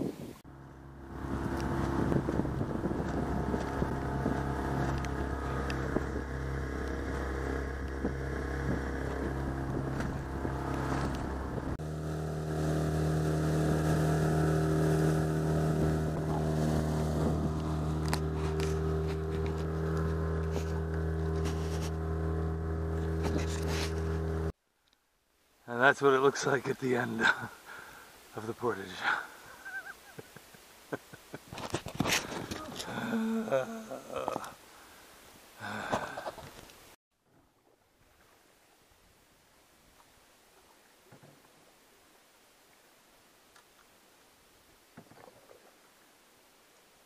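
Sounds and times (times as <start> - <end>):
water and wind rushing: 0.0 - 24.6, 25.8 - 47.0
motorboat engine running: 0.5 - 24.6, 31.8 - 34.4.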